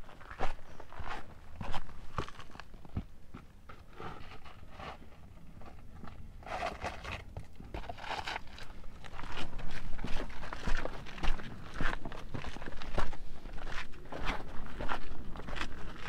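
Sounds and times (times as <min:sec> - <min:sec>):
footsteps crunching on rocky trail: 0:00.0 - 0:16.0.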